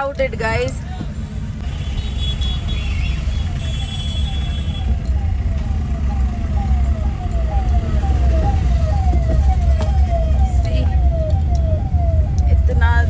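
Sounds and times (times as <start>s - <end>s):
car rumble in traffic: 0.0s - 13.0s
siren sweeping downward: 3.1s - 13.0s.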